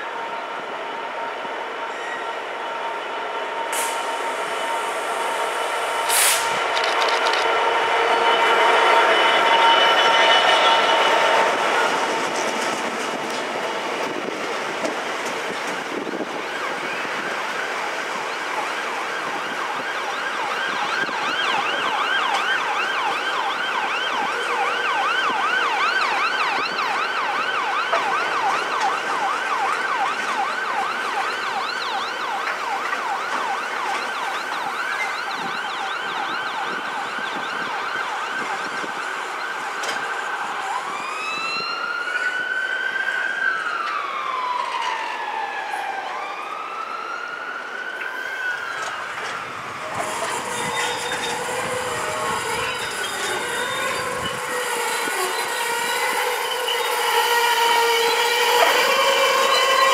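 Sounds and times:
emergency siren yelp and wail: 0.0 - 59.9
rolling hopper wagons: 48.7 - 59.9.

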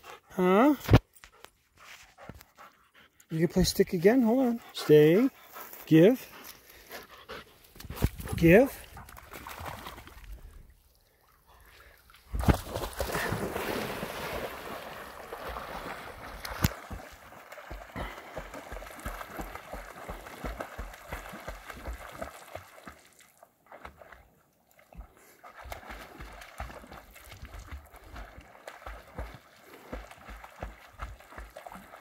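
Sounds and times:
dog paddling in water: 7.4 - 32.0
dog splashing into water: 8.9 - 10.5, 12.3 - 24.2.

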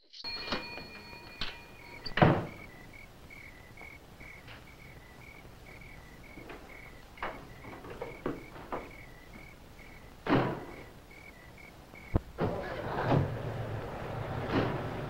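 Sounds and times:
crickets chirping: 0.0 - 12.4
door shutting with a thud: 2.0 - 2.7, 10.2 - 10.9, 12.4 - 15.0.

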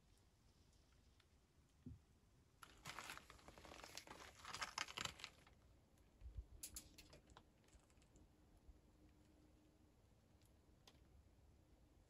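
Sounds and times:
crinkling and rustling: 2.6 - 5.6.

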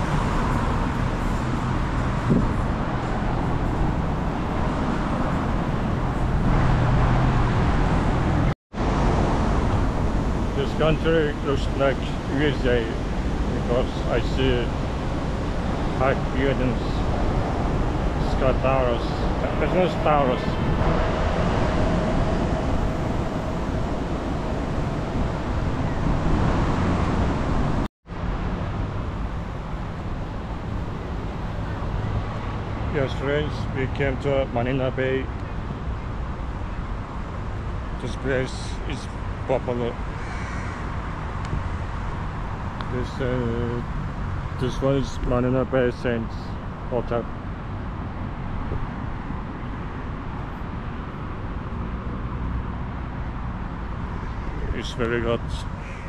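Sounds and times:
low engine hum: 0.0 - 39.8
passing cars: 0.0 - 56.0.

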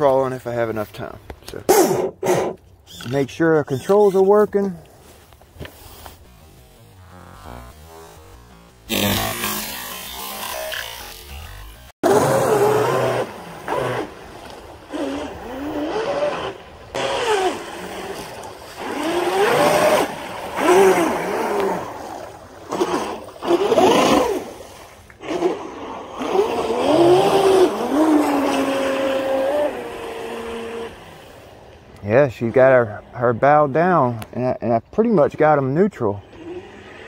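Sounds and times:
electric motor whining: 5.6 - 24.5, 25.2 - 31.4.

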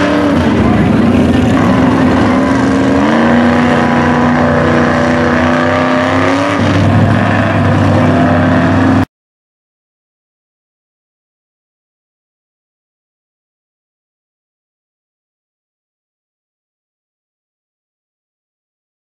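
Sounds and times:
truck engine revving under load: 0.0 - 9.1.

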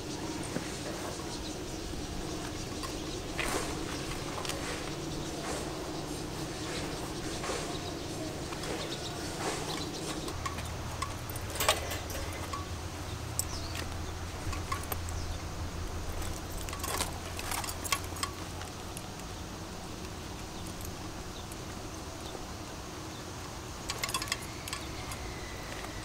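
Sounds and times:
keys and metal clips jangling: 9.7 - 19.2, 23.8 - 25.9.

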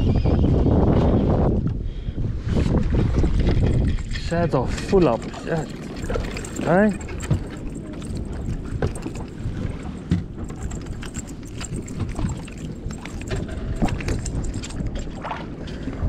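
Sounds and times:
wind on microphone: 0.0 - 16.0
water moving around boat: 2.4 - 16.0.

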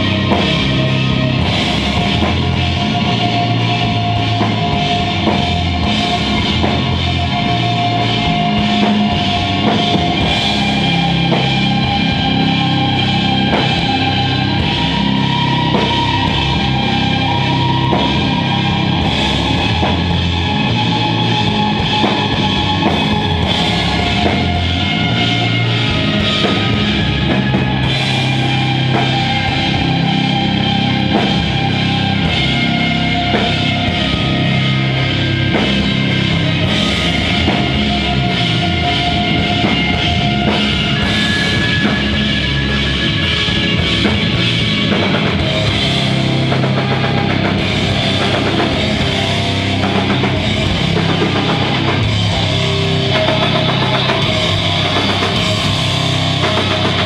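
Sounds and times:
drum kit keeping a steady beat: 0.0 - 57.0
electric guitars: 0.0 - 57.0.

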